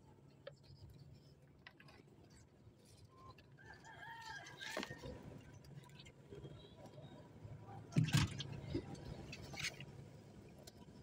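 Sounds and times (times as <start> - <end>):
faint rooster crowing: 3.5 - 5.3.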